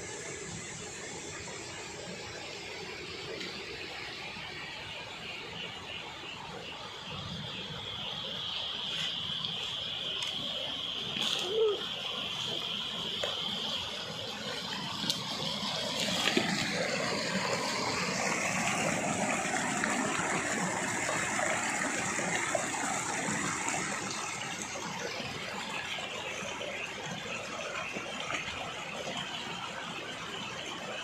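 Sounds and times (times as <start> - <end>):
flowing water rushing: 0.0 - 31.0.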